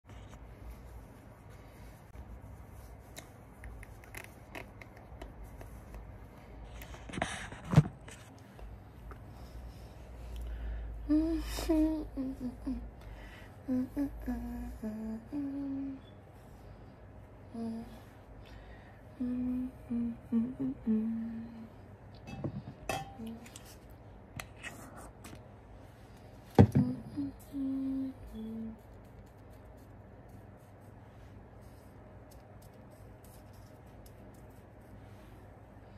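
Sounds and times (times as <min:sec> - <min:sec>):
woman humming: 0:11.0 - 0:12.9, 0:13.6 - 0:16.1, 0:17.5 - 0:18.1, 0:19.1 - 0:21.7, 0:26.7 - 0:28.8.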